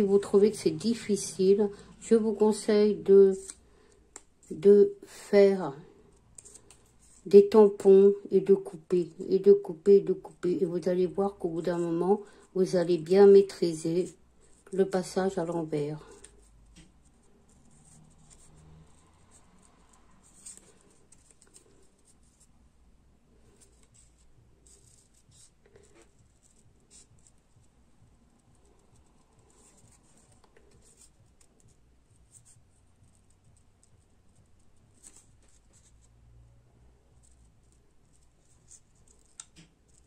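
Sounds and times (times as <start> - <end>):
scissors snipping paper: 38.6 - 40.0.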